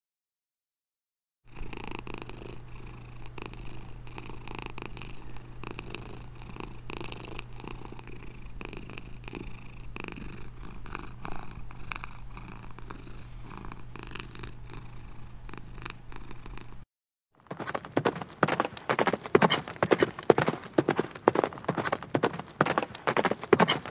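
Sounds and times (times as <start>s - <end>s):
kitten purring: 1.5s - 16.9s, 17.8s - 23.9s.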